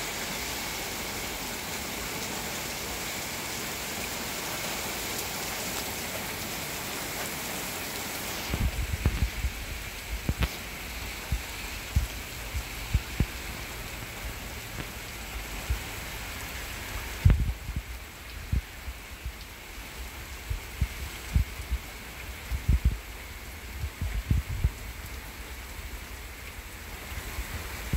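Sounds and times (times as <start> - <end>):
hard rain hissing: 0.0 - 27.9
dull low thumps: 8.5 - 10.5, 11.1 - 13.6, 17.2 - 19.4, 22.5 - 23.0, 23.8 - 24.8.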